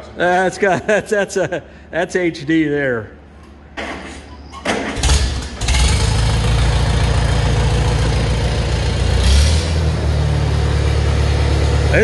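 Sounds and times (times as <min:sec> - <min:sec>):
tractor engine running: 0:04.9 - 0:12.0.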